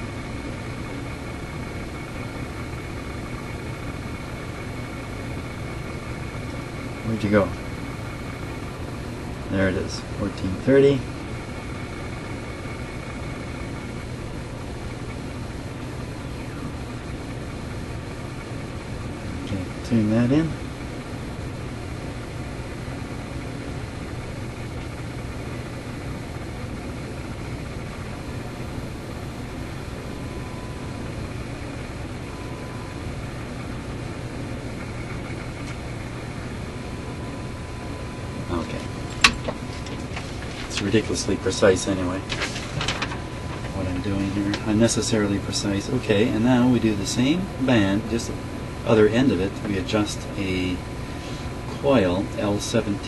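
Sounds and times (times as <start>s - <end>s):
faint steady test tone: 0.0s - 53.0s
low hum: 0.0s - 53.0s
radio static hiss: 0.0s - 53.0s.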